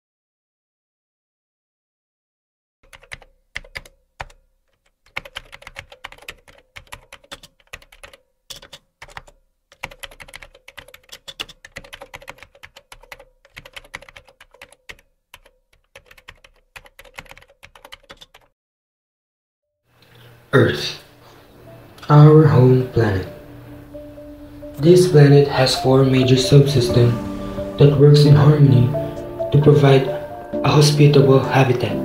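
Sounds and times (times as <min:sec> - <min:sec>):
keyboard typing clicks: 0:02.9 - 0:18.5.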